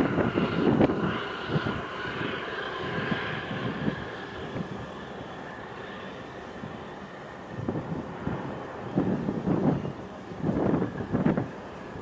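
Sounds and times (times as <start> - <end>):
steady rushing hiss: 0.0 - 12.0
wind buffeting microphone: 0.0 - 12.0.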